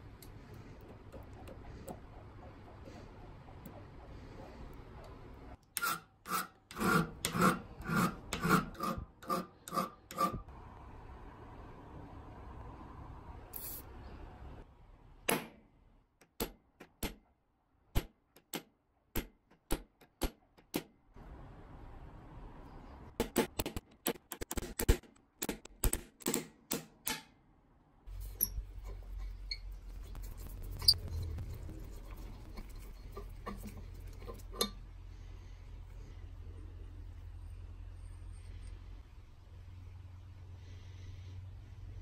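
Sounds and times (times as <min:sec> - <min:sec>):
steady low hum: 0:28.1 - 0:42.0
valve spindle scraping: 0:28.2 - 0:34.7.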